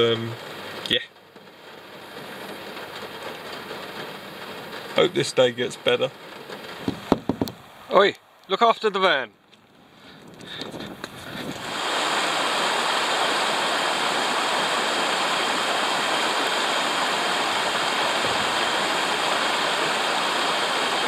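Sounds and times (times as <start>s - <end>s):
stream rushing over rocks: 10.4s - 21.0s.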